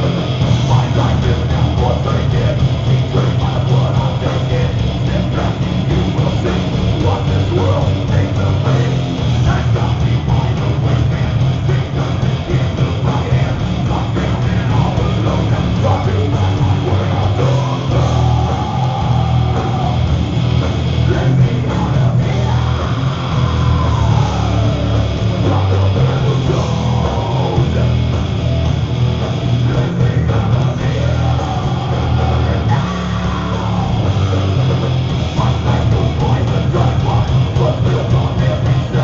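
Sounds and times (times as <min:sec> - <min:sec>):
person singing into a microphone: 0:00.0 - 0:20.2, 0:21.0 - 0:28.2, 0:29.6 - 0:39.0
distorted electric guitars: 0:00.0 - 0:39.0.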